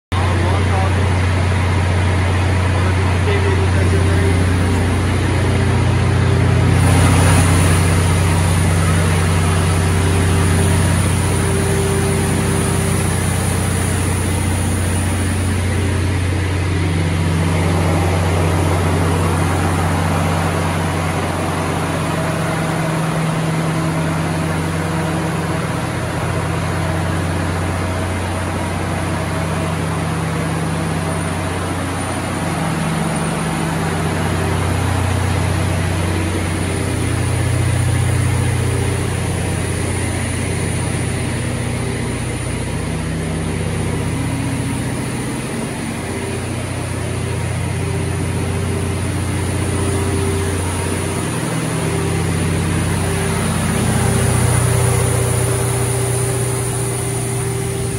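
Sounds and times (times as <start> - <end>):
diesel generator droning: 0.1 - 57.9.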